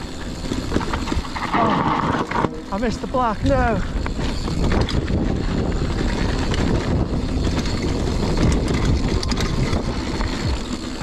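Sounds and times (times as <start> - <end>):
bike rattling and clicking: 0.0 - 11.0
bike tyre rumble on dirt: 0.0 - 11.0.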